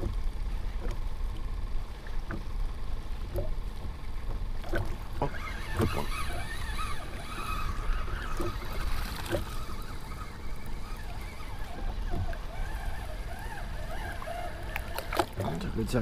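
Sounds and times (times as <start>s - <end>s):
waves lapping against kayak hull: 0.0s - 16.0s.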